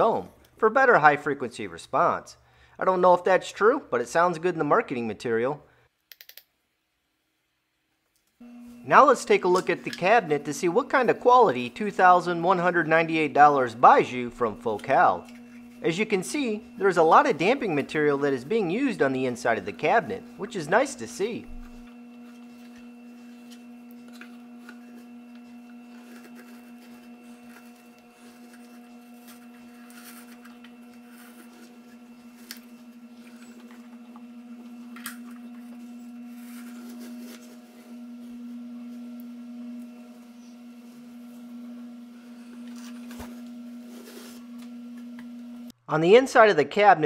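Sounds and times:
steady low hum: 8.4 - 45.8
fibre material rustling: 21.5 - 34.8.

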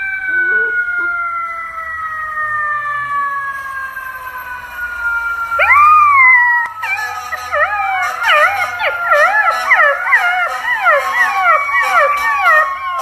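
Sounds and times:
siren falling tone: 0.0 - 13.0
puppy howling: 0.2 - 1.2, 5.6 - 13.0.

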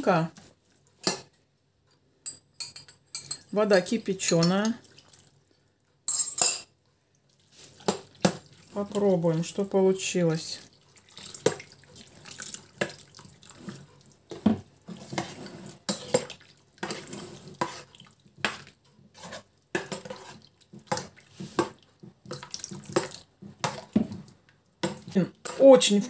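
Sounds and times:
water pouring into a pot: 10.4 - 14.2, 20.5 - 23.8.

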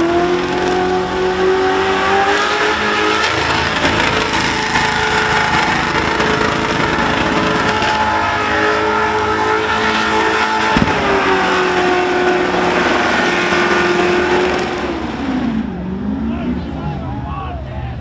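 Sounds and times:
car engine at high revs: 0.0 - 17.2
sharp bang: 10.7 - 11.6.

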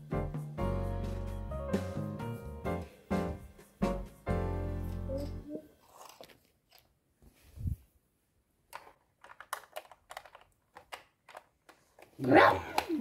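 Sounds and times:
plastic toy clicks and taps: 8.7 - 13.0.

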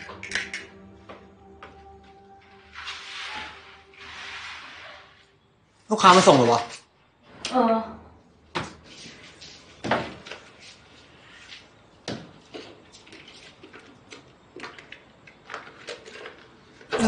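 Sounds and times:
footsteps on tiled floor: 0.0 - 4.4.

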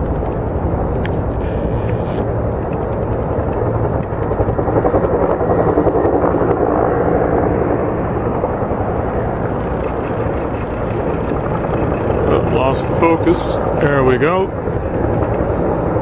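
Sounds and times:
helicopter rotor throbbing drone: 0.0 - 16.0.

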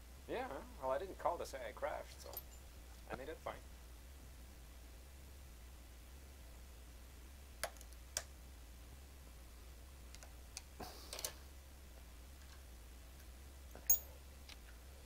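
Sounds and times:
steady low hum: 0.0 - 15.0
tools and metal parts clicking: 2.2 - 2.6, 13.8 - 14.2.

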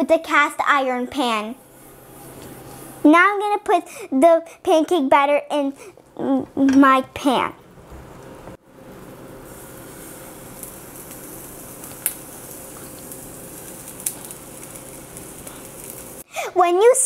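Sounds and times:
batter sizzling in pan: 8.1 - 16.2.

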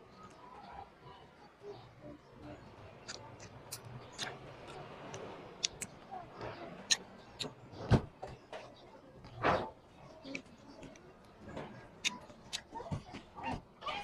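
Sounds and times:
mouth smacks while chewing: 3.0 - 6.0.

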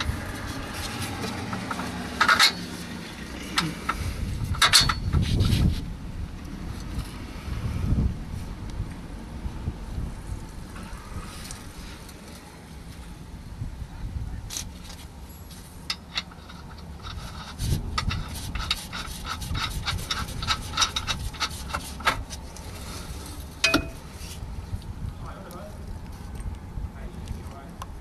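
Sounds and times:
light metallic clicks and knocks: 23.6 - 24.0.

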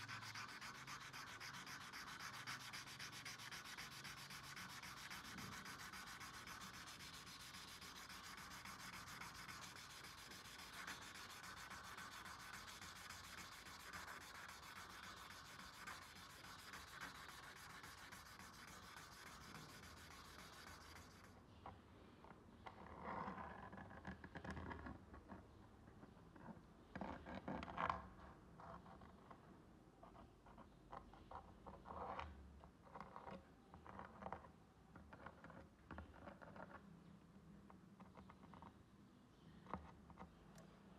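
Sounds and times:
sanding knife blade by hand: 0.0 - 21.3.

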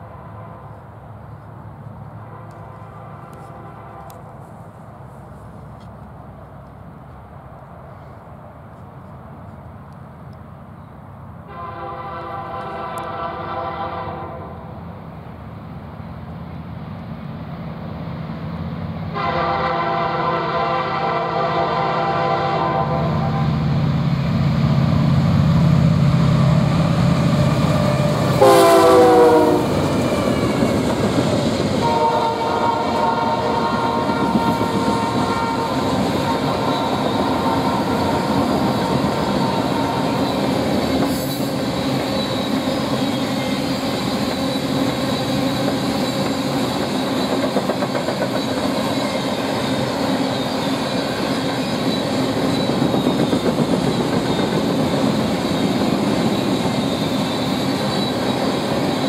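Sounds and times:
train horn blasts: 0.0 - 0.9, 2.2 - 4.5, 11.4 - 14.8, 19.1 - 23.7, 27.9 - 29.9, 31.8 - 40.4
diesel locomotive rumble: 0.0 - 59.0
freight cars rolling past: 22.8 - 59.0.

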